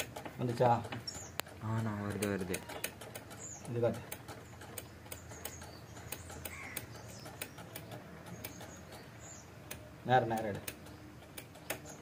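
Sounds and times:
tools clicking and tapping: 0:00.0 - 0:12.0
faint bird calls: 0:02.4 - 0:09.8.

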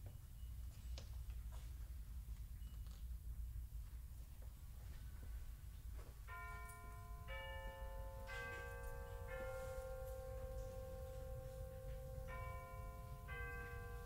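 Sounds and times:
bell-like chime: 0:06.3 - 0:14.0.

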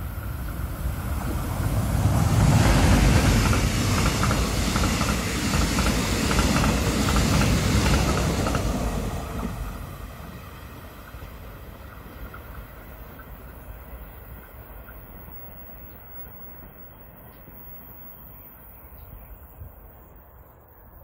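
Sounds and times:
passenger train passing: 0:00.0 - 0:21.0.

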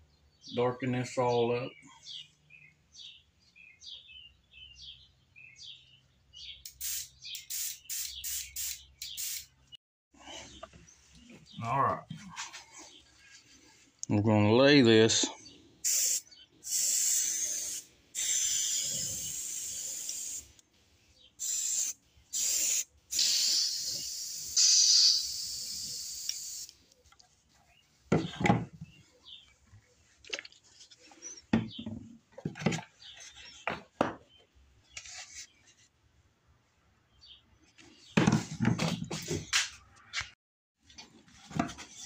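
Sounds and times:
airbrush spraying paint: 0:06.7 - 0:09.5, 0:15.8 - 0:20.6, 0:21.4 - 0:26.8.

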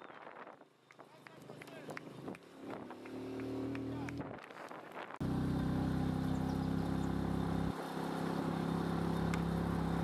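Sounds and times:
vehicle engine running: 0:05.2 - 0:10.0.

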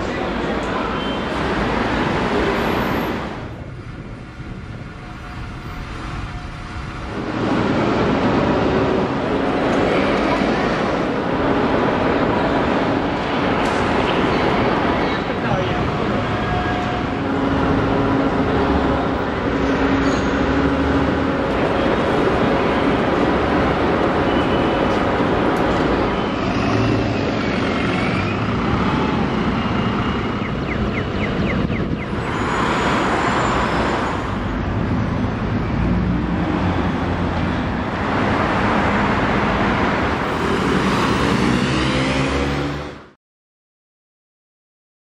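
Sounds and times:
traffic rumble: 0:00.0 - 0:43.1
cars and buses passing: 0:00.0 - 0:43.2
engine speeding up: 0:38.0 - 0:43.1.

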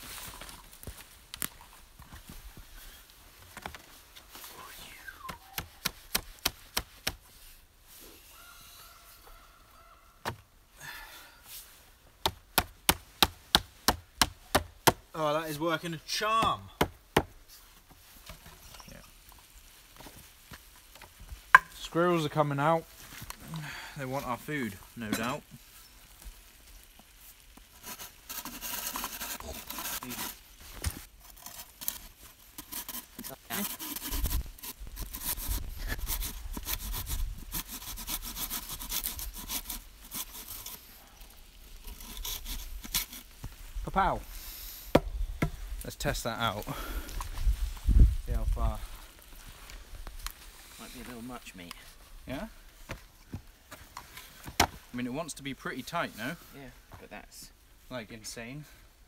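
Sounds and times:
knife scraping wooden pole: 0:27.5 - 0:43.4.

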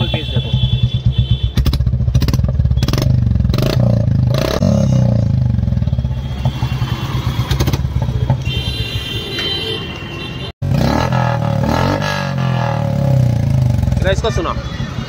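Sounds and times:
motorcycle engine idling: 0:00.1 - 0:04.2.

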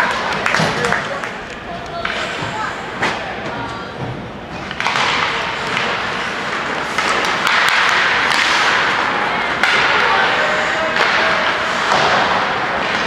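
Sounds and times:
hockey sticks clacking on puck: 0:00.0 - 0:13.0
skates scraping on ice: 0:04.6 - 0:13.0.

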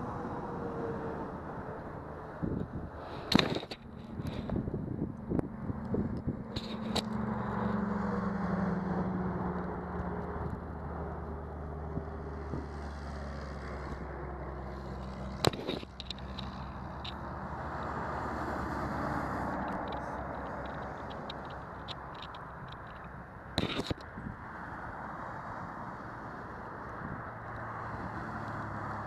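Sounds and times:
road traffic: 0:00.0 - 0:29.0
car passing by: 0:05.5 - 0:15.5, 0:16.4 - 0:21.9, 0:24.6 - 0:29.0.

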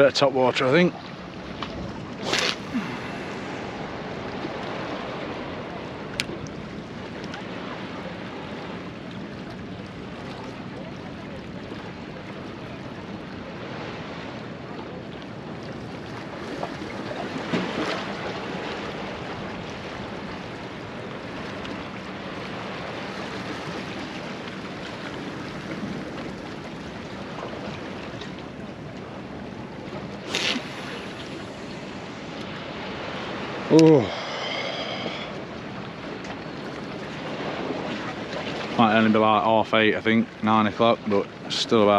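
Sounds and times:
sea washing against rocks: 0:00.0 - 0:08.8, 0:29.6 - 0:36.2
wind on microphone: 0:01.4 - 0:08.0, 0:29.9 - 0:38.8.

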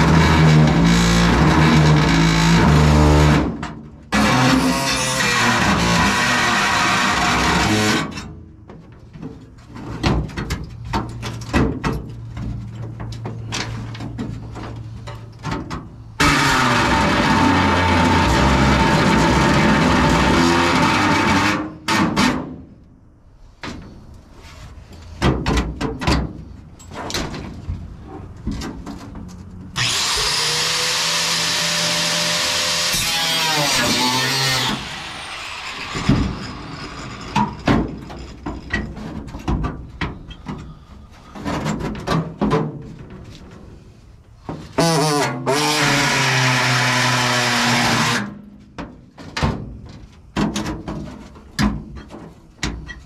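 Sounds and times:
metal clanks and knocks: 0:08.0 - 0:16.1, 0:25.0 - 0:29.7, 0:35.8 - 0:43.6, 0:48.7 - 0:53.0
power tool running: 0:16.2 - 0:21.7, 0:29.8 - 0:37.4.

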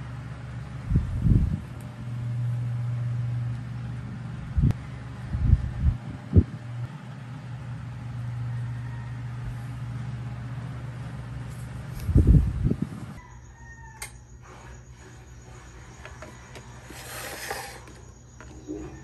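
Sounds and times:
steady low hum: 0:00.0 - 0:19.0
distant rooster crowing: 0:04.7 - 0:05.8, 0:07.9 - 0:10.2, 0:13.1 - 0:17.0.

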